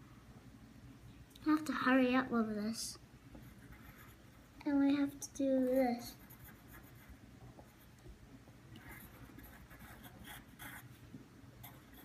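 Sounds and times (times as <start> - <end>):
pencil scratching on paper: 3.4 - 4.3, 5.7 - 7.1, 8.8 - 10.9, 11.6 - 12.0.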